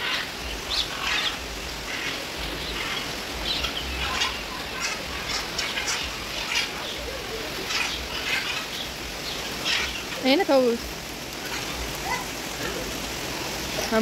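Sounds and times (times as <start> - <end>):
birds calling and chirping: 0.0 - 14.0.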